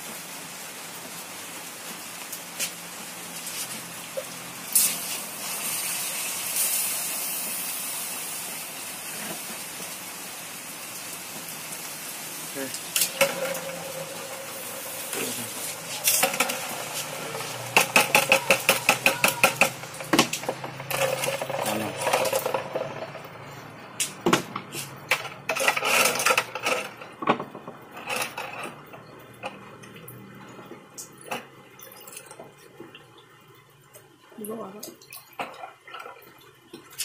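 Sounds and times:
metal clattering and clinking: 0:16.0 - 0:23.4.

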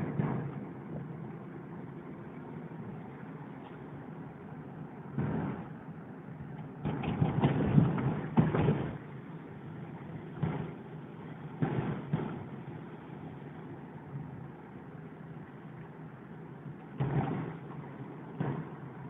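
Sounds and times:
road noise: 0:00.0 - 0:19.0
vehicle engine: 0:00.0 - 0:19.0
loud noise bursts: 0:11.6 - 0:12.6, 0:17.0 - 0:17.7.

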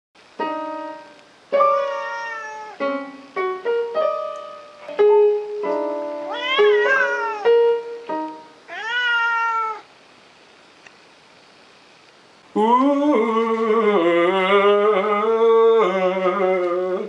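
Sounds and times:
cat meowing: 0:01.6 - 0:02.8, 0:06.3 - 0:07.6, 0:08.7 - 0:09.9
electronic keyboard piano notes: 0:02.8 - 0:08.6.

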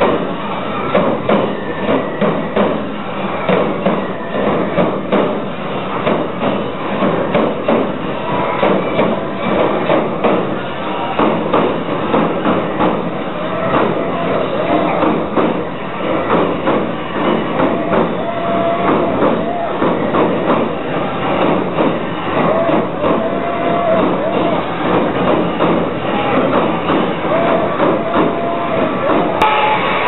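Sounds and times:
taiko drums: 0:11.2 - 0:30.0.

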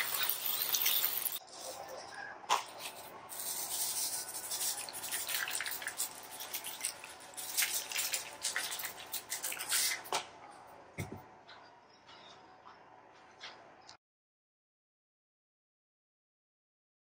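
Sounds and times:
seasoning hissing and ticking: 0:00.0 - 0:01.4, 0:02.8 - 0:10.1.

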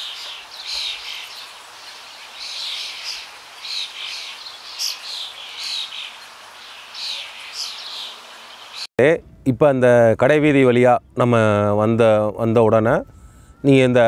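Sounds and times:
birds chirping: 0:00.0 - 0:08.9
faint steady hiss: 0:00.0 - 0:14.0.

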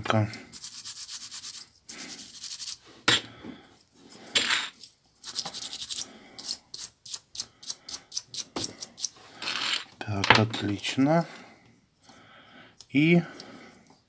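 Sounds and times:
toothbrush scrubbing plastic keys: 0:00.5 - 0:02.8, 0:04.8 - 0:09.2.

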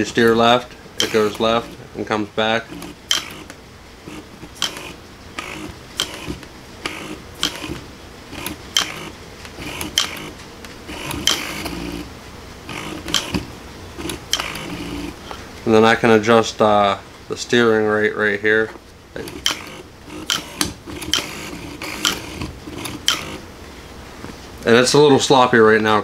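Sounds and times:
sharp mechanical clicks: 0:01.0 - 0:01.8, 0:02.7 - 0:12.0, 0:12.7 - 0:15.1, 0:19.2 - 0:23.4
motor whirring: 0:01.0 - 0:01.9, 0:02.6 - 0:15.2, 0:19.2 - 0:23.5.

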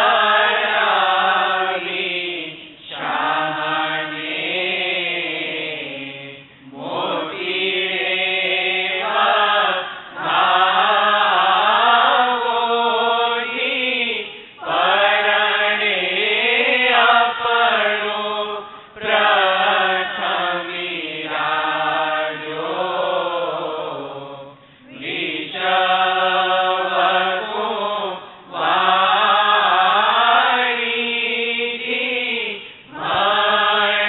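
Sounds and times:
person chanting: 0:00.0 - 0:34.0.

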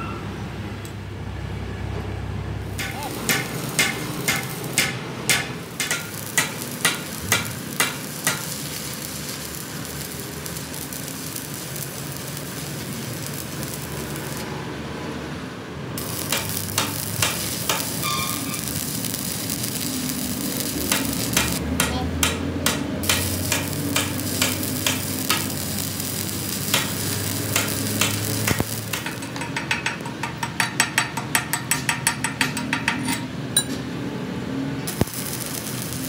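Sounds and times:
arc welding crackling: 0:02.6 - 0:14.8, 0:16.0 - 0:30.8, 0:34.8 - 0:36.0.

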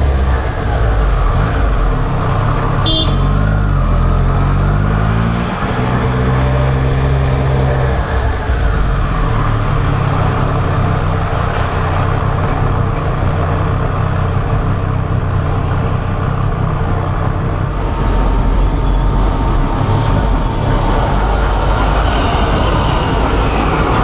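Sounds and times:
motorcycle engine running: 0:07.7 - 0:18.6
wind rush over microphone: 0:19.6 - 0:24.0.

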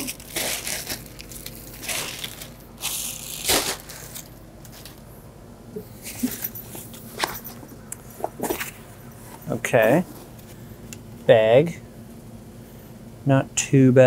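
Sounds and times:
plastic wrap crinkling: 0:00.0 - 0:05.1.

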